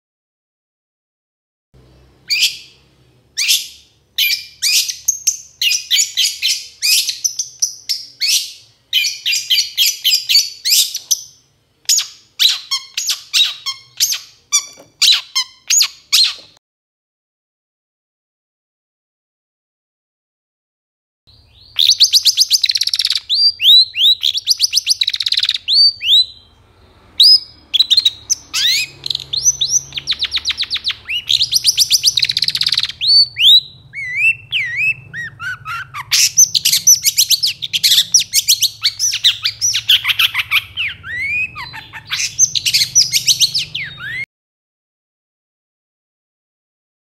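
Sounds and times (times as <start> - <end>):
shrike singing with harsh chatter: 21.4 - 44.2.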